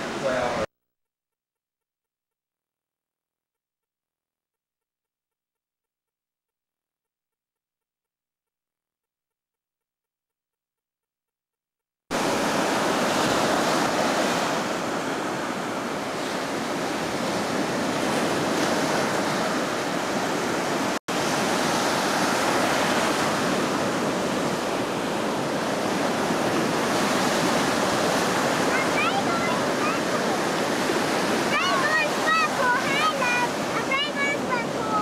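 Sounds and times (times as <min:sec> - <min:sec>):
ocean surf breaking: 0:00.0 - 0:00.7, 0:12.1 - 0:35.0.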